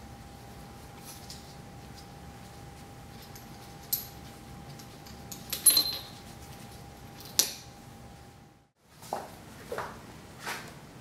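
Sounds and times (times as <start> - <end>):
steel parts clinking: 3.2 - 6.2.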